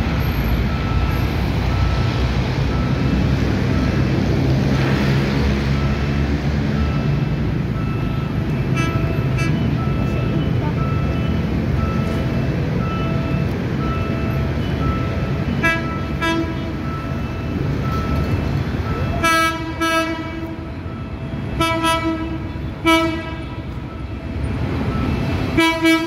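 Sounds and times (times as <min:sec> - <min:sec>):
traffic noise: 0:00.0 - 0:26.0
level crossing warning beep: 0:00.2 - 0:04.2, 0:05.7 - 0:19.3, 0:20.8 - 0:21.6, 0:23.7 - 0:25.6
train horn blasts: 0:15.6 - 0:16.8, 0:19.1 - 0:20.7, 0:21.5 - 0:23.7, 0:25.5 - 0:26.0.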